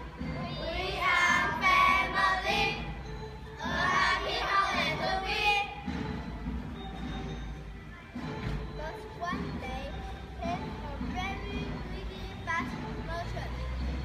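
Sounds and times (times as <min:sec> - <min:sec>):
children singing in chorus: 0:00.3 - 0:03.0, 0:03.6 - 0:05.8.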